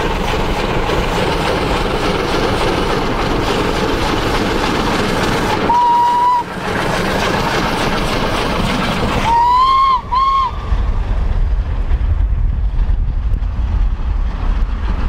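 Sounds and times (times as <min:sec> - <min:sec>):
running train noise: 0:00.0 - 0:15.0
steam locomotive whistle: 0:05.6 - 0:06.6, 0:09.2 - 0:10.8
low rumble: 0:06.6 - 0:15.0
wind on microphone: 0:10.0 - 0:15.0.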